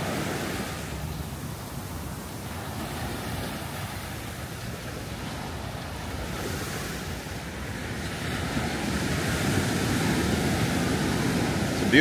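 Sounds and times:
surf washing onto beach: 0.0 - 12.0
wind buffeting microphone: 0.0 - 12.0.

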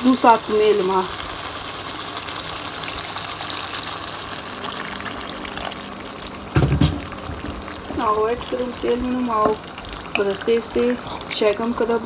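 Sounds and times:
water pouring into a pot: 1.6 - 11.9.

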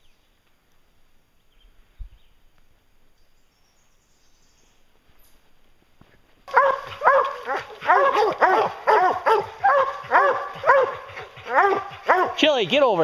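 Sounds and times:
hounds baying and barking: 6.5 - 13.0.

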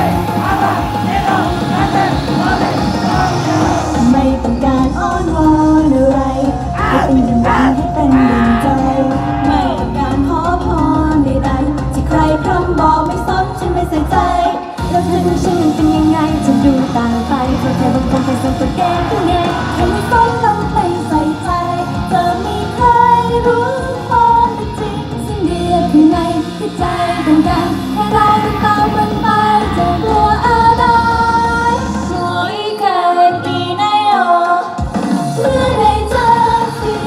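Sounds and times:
pop song with female singing: 0.0 - 37.0.

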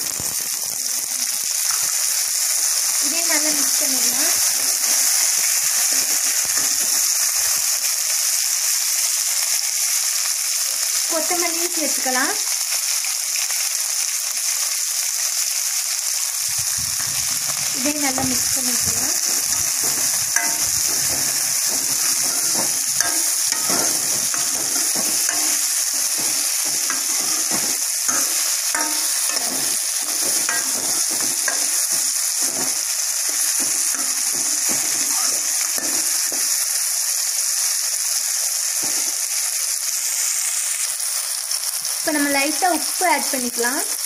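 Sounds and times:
vegetables sizzling in hot oil: 0.0 - 44.0
spatula scraping metal pan: 17.0 - 36.6.

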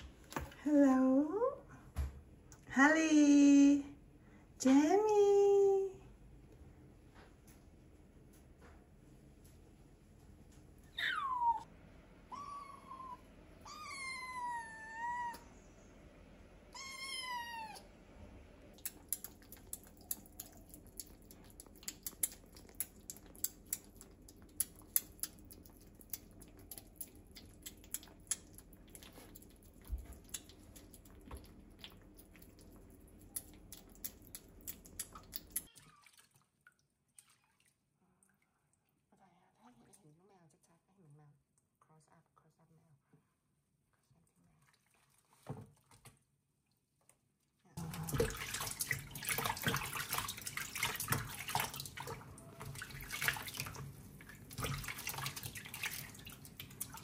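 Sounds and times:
kittens meowing: 10.9 - 11.6, 12.3 - 15.5, 16.7 - 17.9
kittens eating from metal bowls: 18.6 - 36.0, 47.8 - 57.0.

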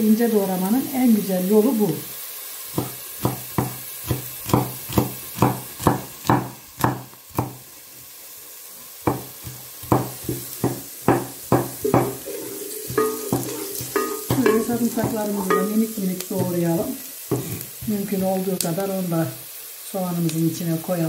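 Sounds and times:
knife chopping on wooden board: 2.8 - 7.6, 9.1 - 12.2, 17.3 - 17.6.

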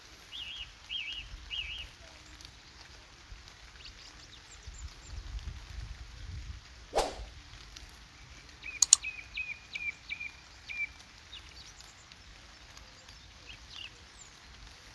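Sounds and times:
low outdoor background: 6.7 - 9.8
falling swoosh: 7.0 - 7.3
sharp clicks: 8.8 - 9.0.

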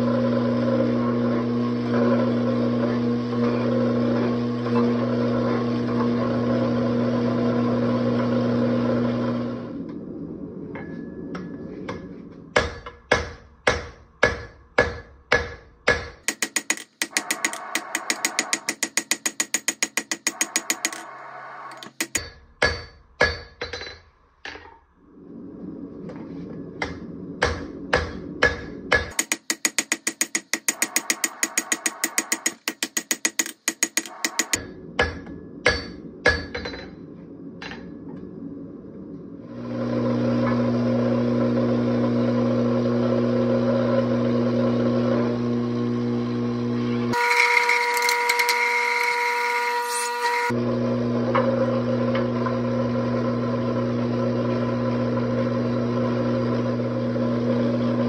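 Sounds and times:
hammer striking steel on anvil: 10.8 - 21.1, 21.7 - 24.7, 26.8 - 37.0
forging press humming: 10.8 - 24.8, 26.1 - 38.4.

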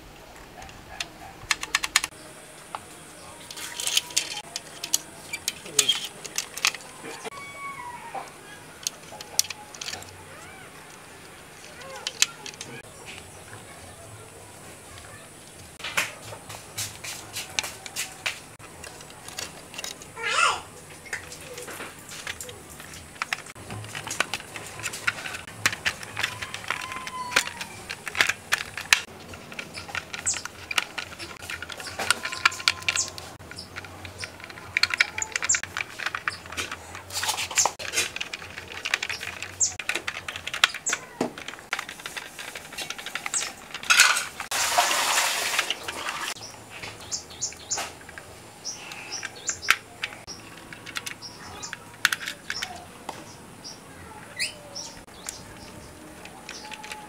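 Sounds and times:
clicks and taps of plastic parts: 0.6 - 2.9, 3.5 - 7.4, 8.2 - 10.2, 10.9 - 13.7, 21.0 - 44.5, 49.1 - 53.3, 54.8 - 57.0.

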